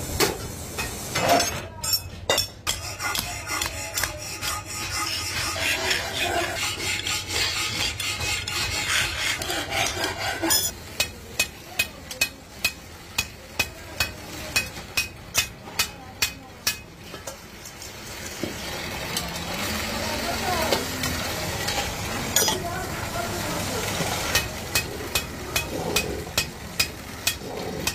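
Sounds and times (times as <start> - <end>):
blade scraping metal: 1.2 - 11.2.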